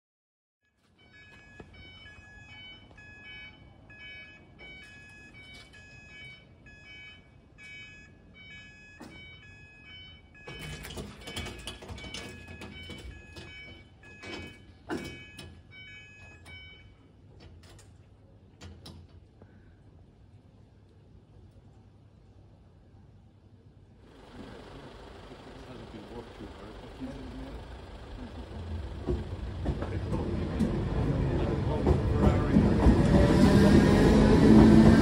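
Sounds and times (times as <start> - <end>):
level crossing alarm tone: 0.7 - 17.3, 24.1 - 35.0
rumbling with sharp knocks: 27.6 - 33.5.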